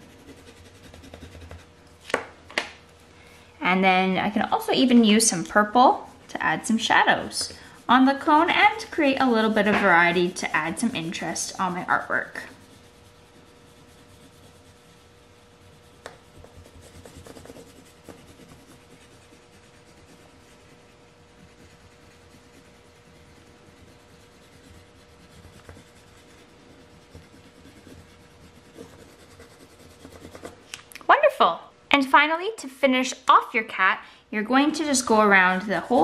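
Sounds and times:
pencil scratching on paper: 0.0 - 1.8, 4.5 - 30.6, 35.1 - 36.0.

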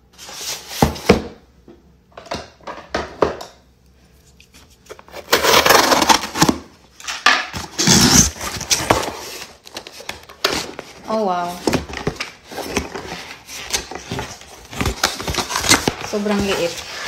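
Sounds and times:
cardboard and tape tearing: 5.0 - 6.7, 7.5 - 17.0.

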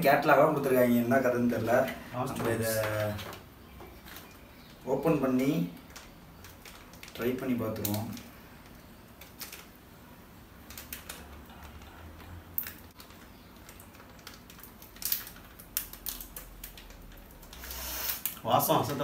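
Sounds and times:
snack wrapper crinkling: 5.8 - 9.8, 10.6 - 18.4.

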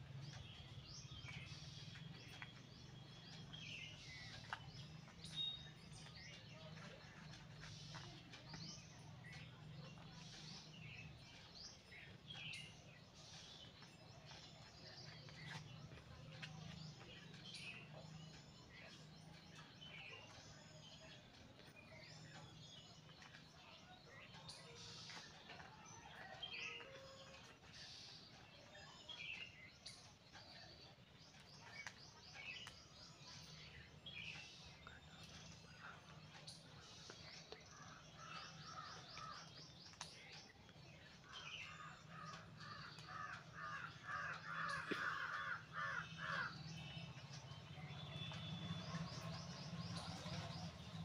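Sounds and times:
small birds chirping: 0.0 - 51.0
crows cawing: 42.6 - 46.6.

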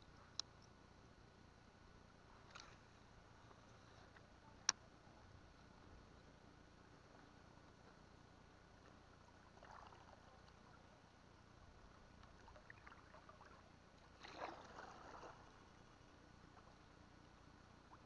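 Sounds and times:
water sloshing around boat: 8.7 - 18.0
soft water splashes: 8.8 - 11.1, 11.9 - 17.0.

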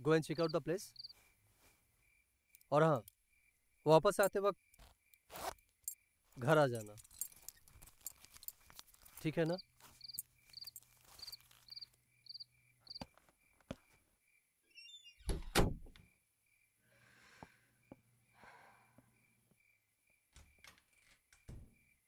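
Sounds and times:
crickets chirping: 0.0 - 14.9, 16.0 - 22.0
soft rustles: 6.3 - 12.0
door creaking: 14.9 - 16.0
door shutting with heavy thud: 15.3 - 15.9.

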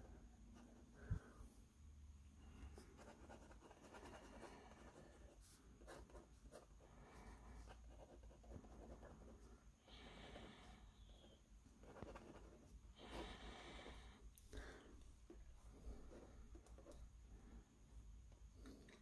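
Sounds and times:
pen scratching on paper: 2.6 - 9.5, 11.0 - 13.2.

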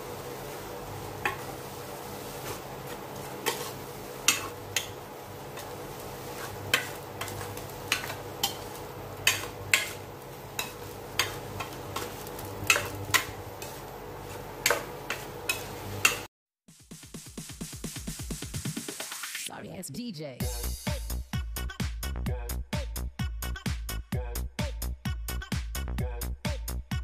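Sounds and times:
cooktop low hum: 0.0 - 16.3
utensil stirring meat in pan: 0.1 - 16.3
metal scraping and knocking on pan: 6.4 - 16.3.

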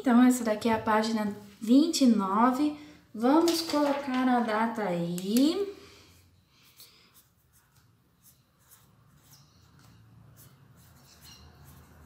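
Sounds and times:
marker writing on paper: 6.7 - 12.0.

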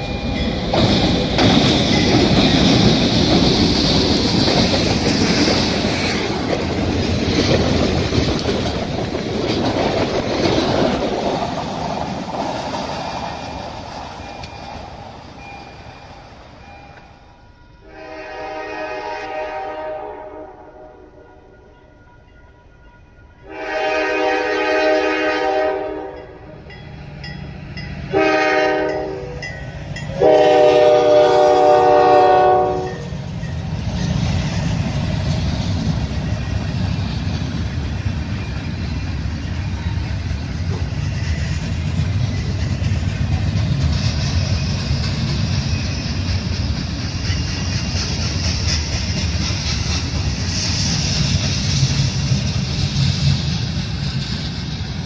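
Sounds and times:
freight cars clacking over rails: 0.0 - 14.2
train rumble: 0.0 - 55.0
locomotive horn blasts: 17.8 - 21.8, 23.4 - 26.5, 28.1 - 29.5, 30.1 - 33.1
hiss: 42.5 - 55.0.

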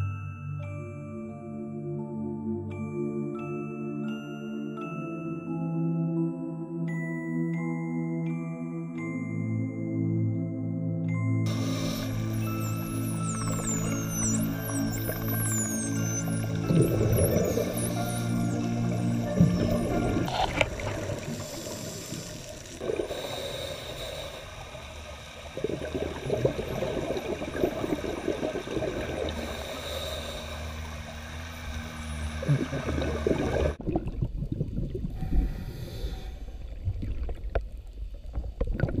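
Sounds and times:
dolphin whistles: 11.5 - 20.5
regulator bubbles gurgling: 11.5 - 39.0.

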